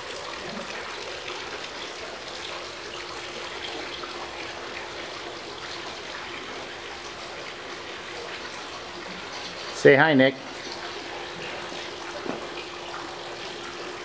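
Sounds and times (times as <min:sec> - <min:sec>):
water trickling and splashing: 0:00.0 - 0:14.0.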